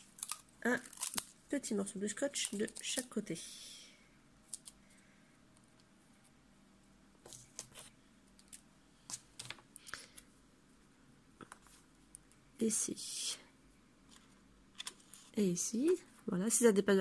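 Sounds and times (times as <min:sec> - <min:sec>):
hands handling paper and tape: 0:00.0 - 0:01.4, 0:02.1 - 0:03.2, 0:04.5 - 0:04.8, 0:07.2 - 0:10.0.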